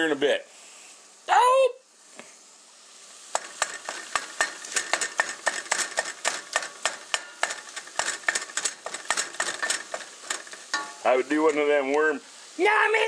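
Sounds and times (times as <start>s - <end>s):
meat sizzling in a pan: 1.8s - 13.0s
wooden spoon scraping a pan: 3.3s - 11.7s.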